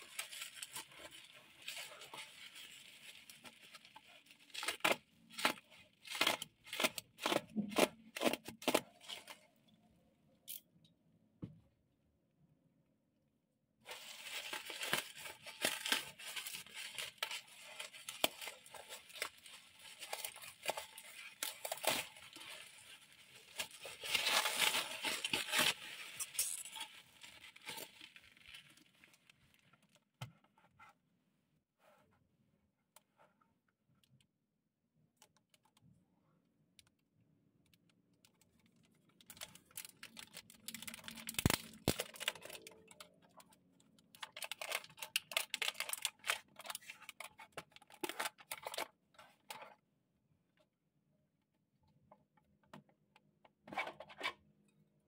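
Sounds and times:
bubble wrap crinkling: 0.0s - 9.4s, 13.9s - 29.6s, 39.2s - 43.4s, 44.1s - 48.9s
plastic box crinkling: 13.9s - 29.3s, 39.2s - 43.4s, 44.2s - 48.9s.

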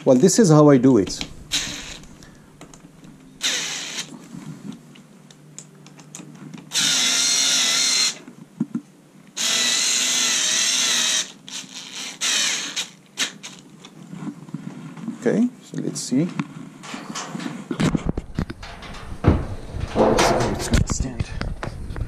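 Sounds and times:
electric screwdriver running: 1.5s - 2.0s, 3.4s - 4.1s, 6.7s - 8.2s, 9.4s - 13.4s
small clicks and handling noises: 4.0s - 6.7s.

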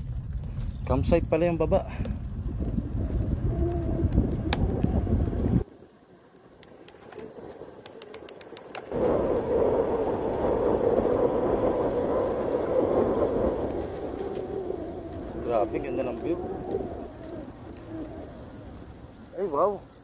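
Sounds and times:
wind buffeting microphone: 0.0s - 5.7s, 7.1s - 19.8s
bicycle road noise: 0.0s - 20.0s
steady rushing noise: 1.0s - 20.0s
faint scattered clicks: 6.5s - 9.2s, 13.5s - 20.0s.

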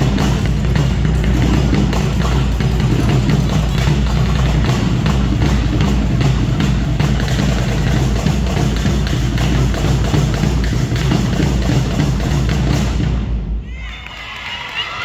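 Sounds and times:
bass-heavy music with drum beat: 0.0s - 13.2s.

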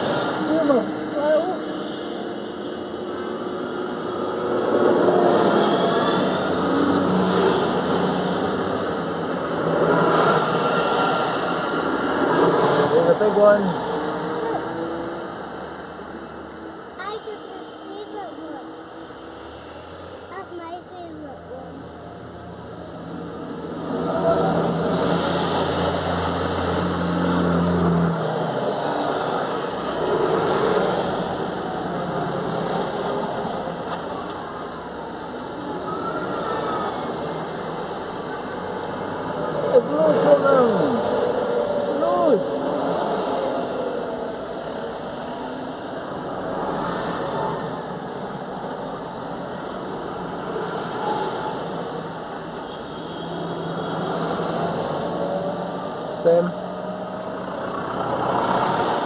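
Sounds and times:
tractor diesel engines passing: 21.4s - 52.6s, 53.4s - 59.0s.

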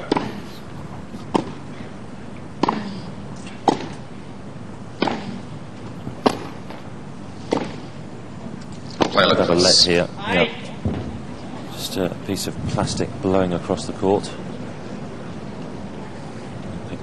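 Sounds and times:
tennis rackets hitting ball: 0.0s - 0.6s, 1.2s - 1.6s, 2.6s - 4.1s, 4.9s - 7.9s, 8.9s - 9.3s.

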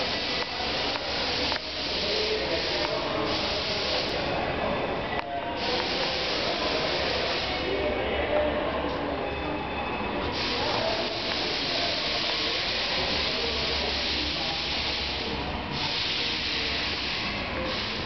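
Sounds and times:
steady hiss: 0.0s - 4.3s, 5.6s - 7.8s, 10.3s - 18.0s.

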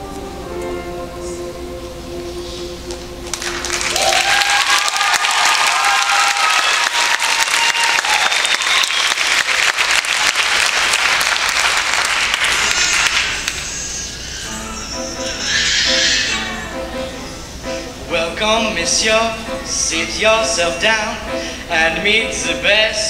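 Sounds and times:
audience cheering: 3.3s - 13.6s
audience applauding: 3.3s - 14.2s.

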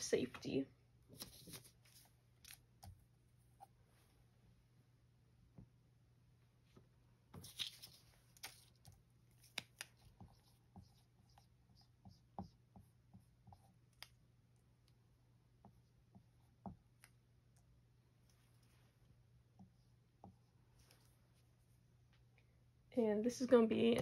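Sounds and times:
paper rustle: 1.1s - 2.6s, 7.4s - 9.9s
marker scratching on whiteboard: 9.9s - 13.9s.

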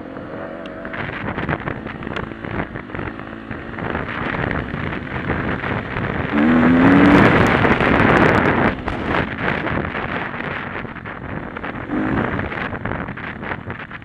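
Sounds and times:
dirt bike engine revving: 0.0s - 10.8s, 11.6s - 13.6s
wind rush on camera: 0.0s - 14.0s.

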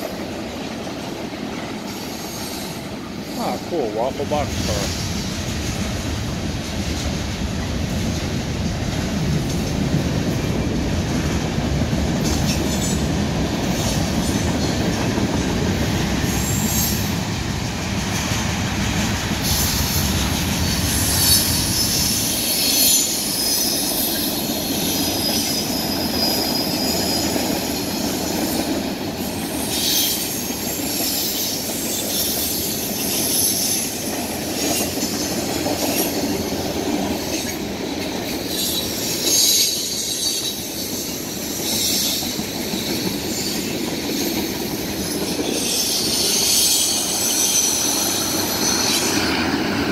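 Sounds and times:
train wheels clattering over rails: 0.0s - 49.9s
high-pitched wheel squeal: 20.6s - 27.6s, 45.5s - 49.3s.

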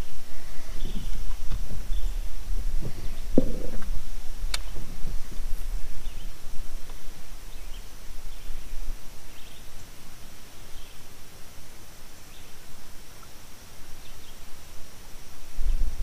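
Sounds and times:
faint chirps: 0.0s - 4.9s
low rumble: 0.0s - 9.2s.

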